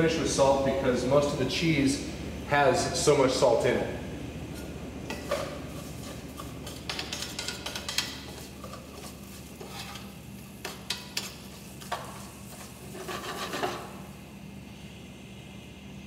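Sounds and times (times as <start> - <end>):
rice sauteing in oil: 4.5 - 16.0
metal spoon scraping a pan: 4.6 - 14.1.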